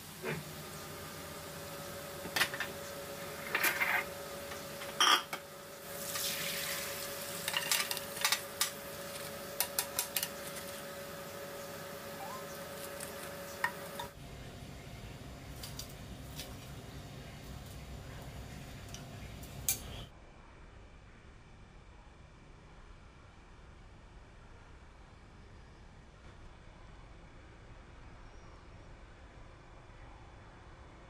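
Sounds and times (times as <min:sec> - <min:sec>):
hot oil sizzling: 0:00.0 - 0:14.2
steady hum: 0:00.0 - 0:31.0
ribs clattering into metal strainer: 0:07.4 - 0:08.8.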